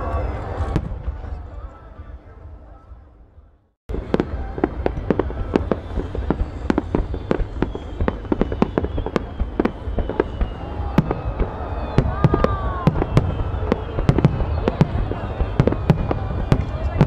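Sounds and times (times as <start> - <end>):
fireworks bangs and cracks: 3.9 - 17.0.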